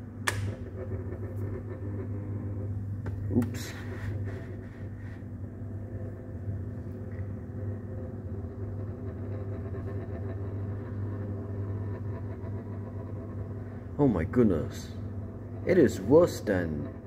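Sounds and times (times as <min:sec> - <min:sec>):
table fan humming: 0:00.0 - 0:17.0.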